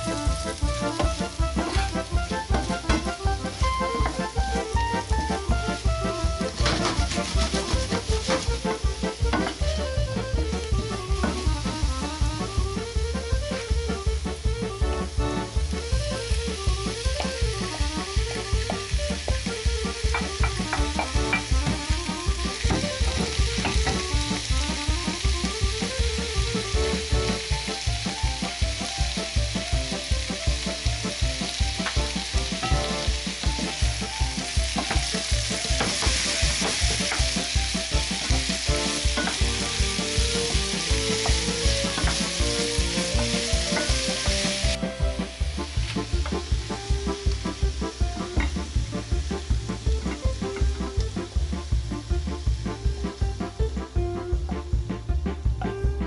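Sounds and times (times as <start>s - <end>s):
food sizzling in a frying pan: 0.0s - 54.0s
music with a steady beat: 0.0s - 56.0s
wooden spatula stirring: 6.5s - 8.8s.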